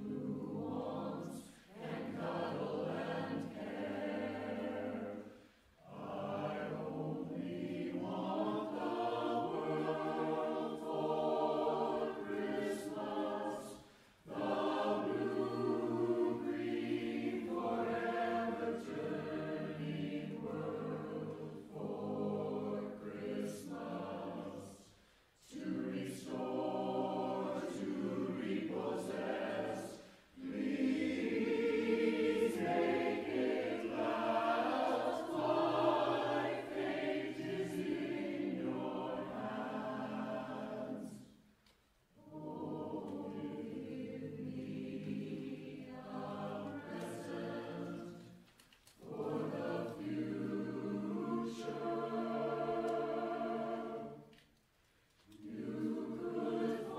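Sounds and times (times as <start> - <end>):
mixed choir singing a cappella: 0.0 - 56.9
singers breathing: 1.4 - 1.8, 5.2 - 5.8, 13.8 - 14.3, 24.9 - 25.4, 30.0 - 30.4.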